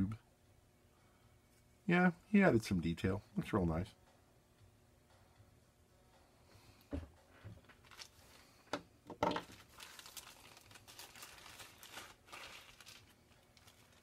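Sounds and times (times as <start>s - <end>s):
plastic bag crinkling: 7.8s - 8.4s, 9.3s - 14.0s.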